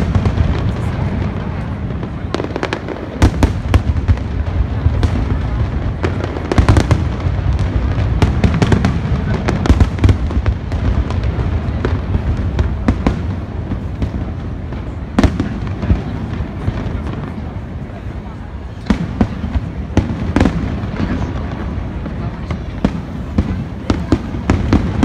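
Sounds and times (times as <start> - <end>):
fireworks cracks and bangs: 0.0 - 25.0.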